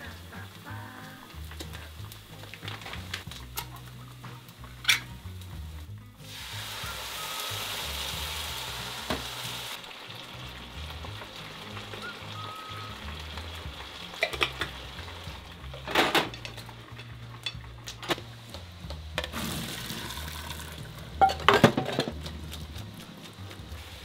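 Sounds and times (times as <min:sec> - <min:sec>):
dishes clattering in a sink: 0:14.2 - 0:14.8, 0:15.7 - 0:18.2, 0:21.2 - 0:22.2
water rushing into a colander: 0:19.3 - 0:22.1.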